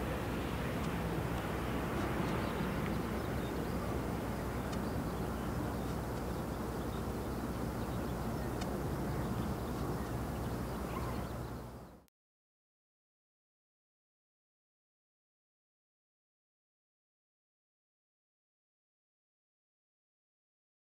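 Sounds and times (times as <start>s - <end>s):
propeller plane drone: 0.0s - 12.1s.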